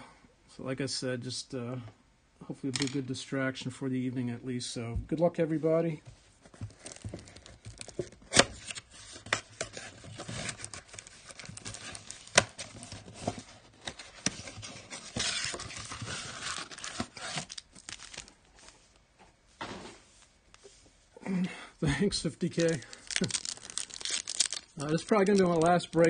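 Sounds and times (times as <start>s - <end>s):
packaging torn and crinkled: 10.2s - 12.9s, 15.3s - 18.4s, 22.4s - 26.0s.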